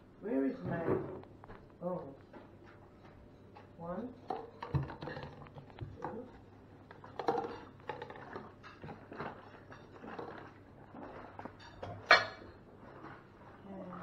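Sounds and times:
plastic cups clattering: 0:04.2 - 0:12.5.

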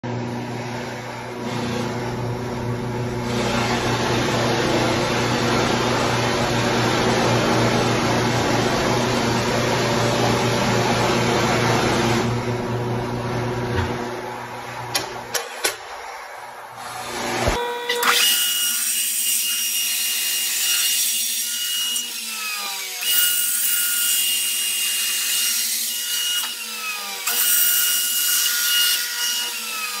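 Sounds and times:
motor hum: 0:00.1 - 0:18.4.

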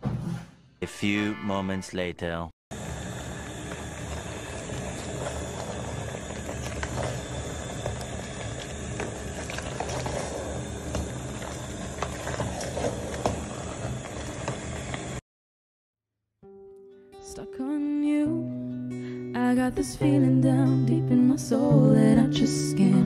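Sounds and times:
stew simmering and bubbling: 0:02.7 - 0:15.2.

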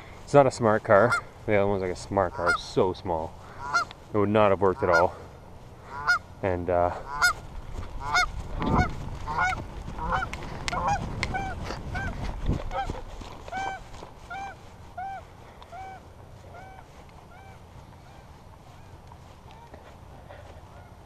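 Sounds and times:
wind: 0:00.0 - 0:21.0
geese honking: 0:00.7 - 0:21.0
camera handling rumble: 0:07.5 - 0:13.6.

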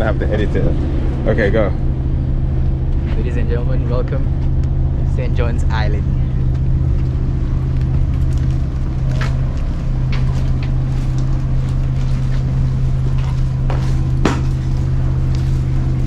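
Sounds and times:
ferry engine humming: 0:00.0 - 0:16.0
sharp knocks: 0:13.7 - 0:14.6.

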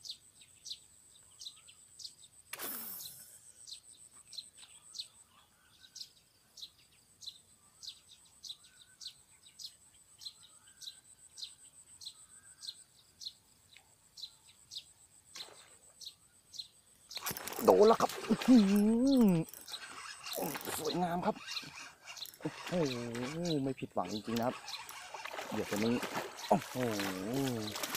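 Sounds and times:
high insect buzz: 0:02.5 - 0:03.6, 0:17.1 - 0:27.9
bird chirping: 0:03.0 - 0:27.9.

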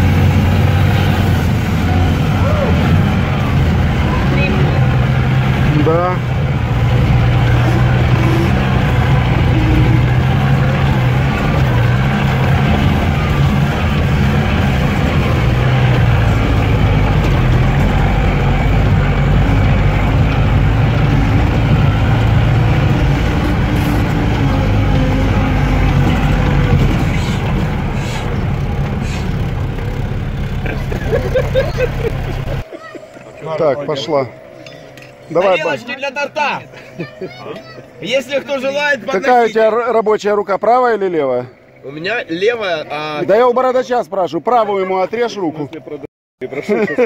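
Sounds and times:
off-road vehicle engine from inside cabin: 0:00.0 - 0:40.0.

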